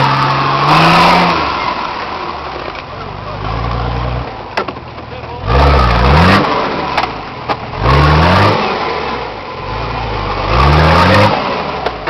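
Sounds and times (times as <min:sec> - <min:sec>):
pickup engine revving: 0:00.0 - 0:12.0.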